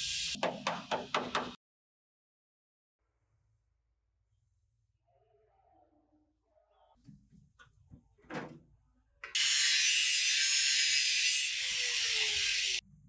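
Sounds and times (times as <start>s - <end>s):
angle grinder cutting steel: 9.3s - 12.8s.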